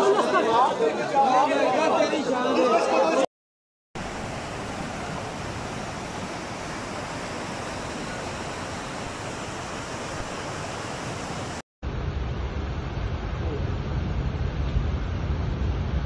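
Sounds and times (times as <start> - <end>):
floodwater rushing down a street: 4.0 - 11.6
dull low rush of water: 4.0 - 16.0.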